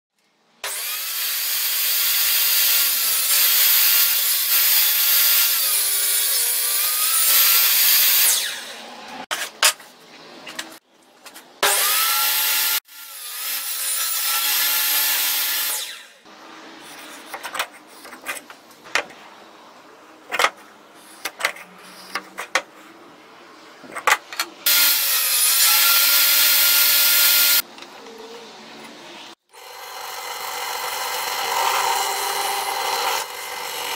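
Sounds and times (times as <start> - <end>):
power saw cutting wood: 0.6 - 9.3, 11.6 - 17.5, 24.6 - 27.6, 29.5 - 33.9.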